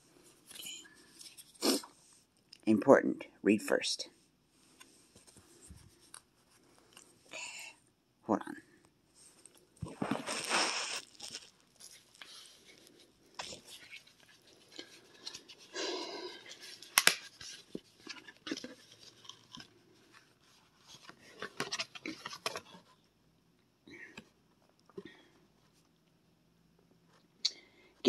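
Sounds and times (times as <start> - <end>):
paper rustling and crinkling: 9.8 - 15.7, 16.4 - 22.9.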